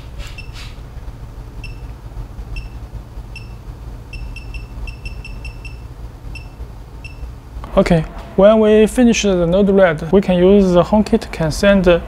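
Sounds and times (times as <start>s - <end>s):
low hum: 0.0s - 12.0s
high-pitched electronic beeps: 1.6s - 1.9s, 2.5s - 7.3s.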